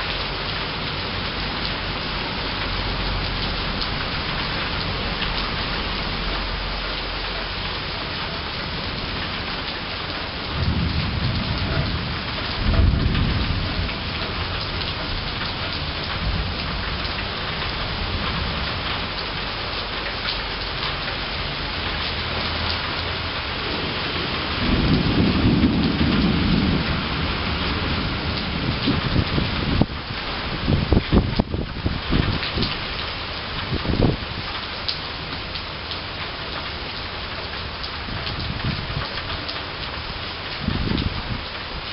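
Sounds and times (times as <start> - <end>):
steady rain: 0.0 - 41.9
thunder rumbling: 7.9 - 19.2, 22.3 - 32.9, 40.1 - 41.5.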